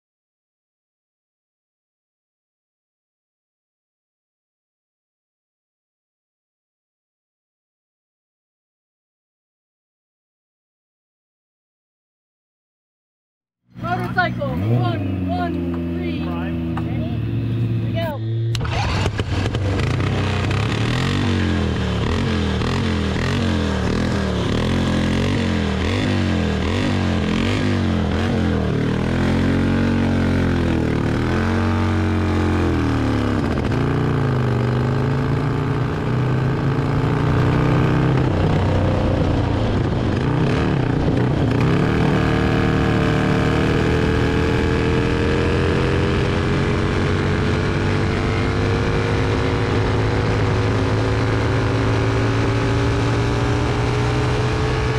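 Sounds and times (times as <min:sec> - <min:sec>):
motorcycle engine revving: 0:13.7 - 0:54.9.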